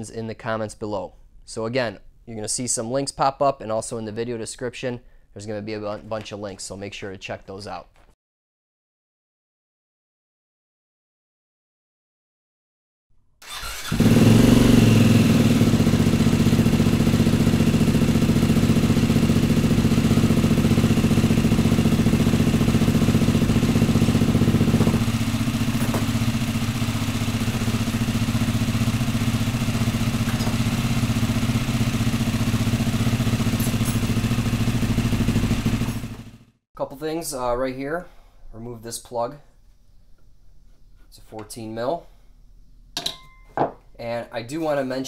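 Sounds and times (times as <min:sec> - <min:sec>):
dirt bike engine starting and idling: 0:13.4 - 0:36.5.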